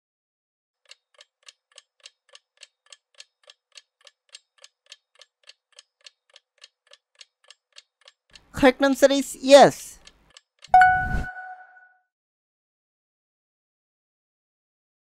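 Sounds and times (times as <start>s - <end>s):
clock ticking evenly: 0.8s - 10.9s.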